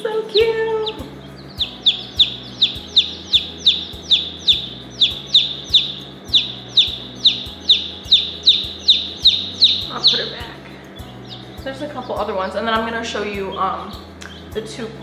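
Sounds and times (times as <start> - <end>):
chick peeping loudly: 0.8 - 12.2.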